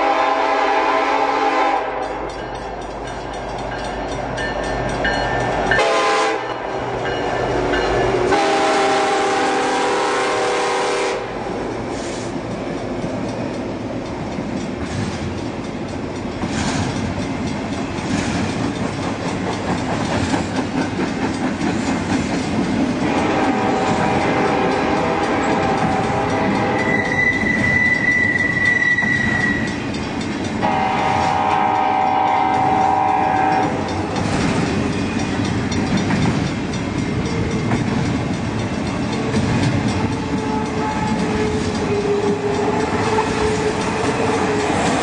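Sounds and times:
train air horn: 0:00.0 - 0:02.3, 0:05.8 - 0:06.7, 0:08.3 - 0:11.4, 0:23.0 - 0:29.7, 0:30.6 - 0:33.9
train wheels clacking on rails: 0:00.0 - 0:45.0.

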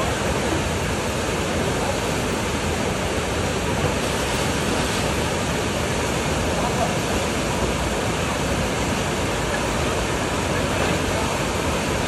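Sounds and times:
rushing whitewater: 0:00.0 - 0:12.0.

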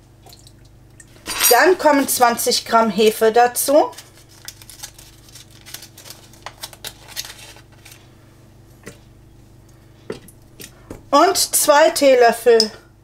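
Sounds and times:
foil wrapper crinkling: 0:03.9 - 0:08.1.

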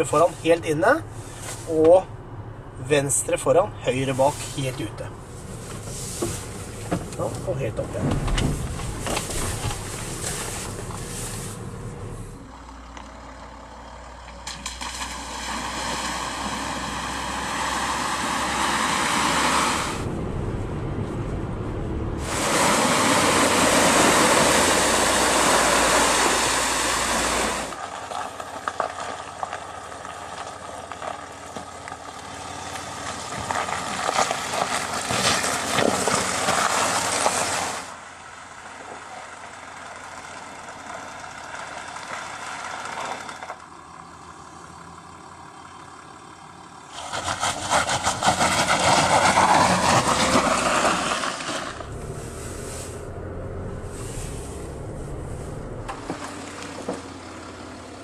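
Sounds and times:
car engine running: 0:00.0 - 0:58.0
tyres crackling on wet gravel: 0:02.8 - 0:21.5, 0:22.2 - 0:58.0
water splashing: 0:14.5 - 0:17.0.

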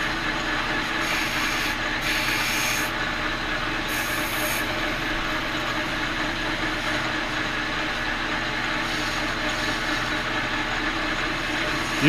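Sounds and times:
lathe humming: 0:00.0 - 0:12.0
boring bar cutting metal: 0:00.9 - 0:03.0, 0:03.8 - 0:06.0.

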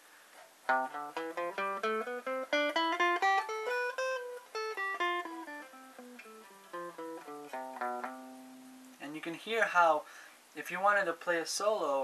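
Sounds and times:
electric guitar picked notes: 0:00.7 - 0:09.0.

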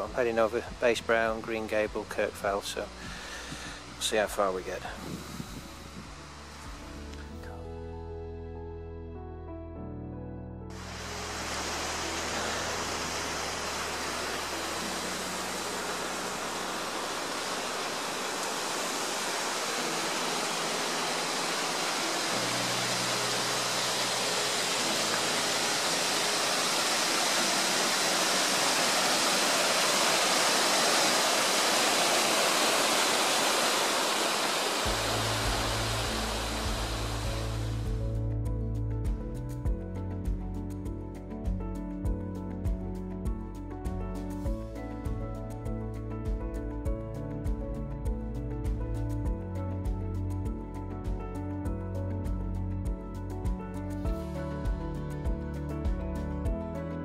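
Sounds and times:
soft background music: 0:00.0 - 0:57.0
waterfall rushing: 0:10.8 - 0:38.0.

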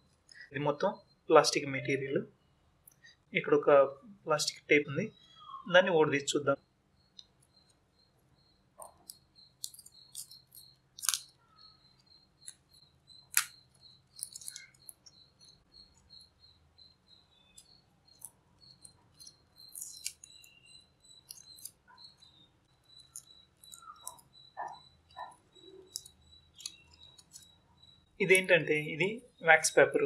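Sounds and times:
plastic tape being peeled: 0:09.6 - 0:11.3, 0:13.3 - 0:13.6, 0:19.6 - 0:20.5.

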